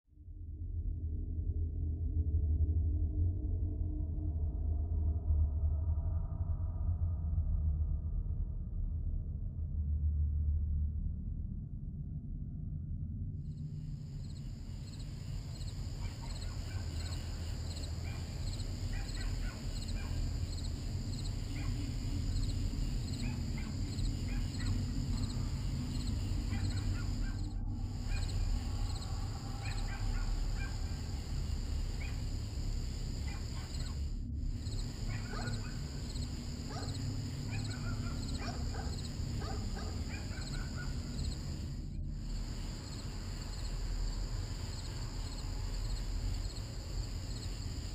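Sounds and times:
low rumble: 0.4 - 37.5
crickets chirping: 13.6 - 47.9.

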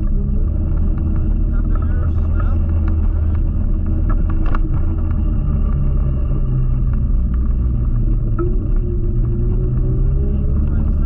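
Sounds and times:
electric scooter rumble and hum: 0.0 - 11.0.

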